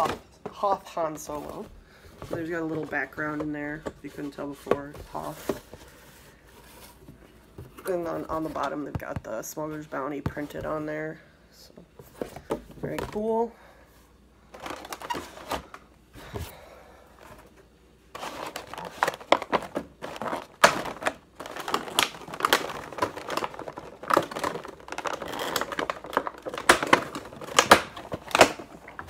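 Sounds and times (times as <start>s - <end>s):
plastic packaging crinkling: 14.6s - 15.7s, 18.1s - 29.0s.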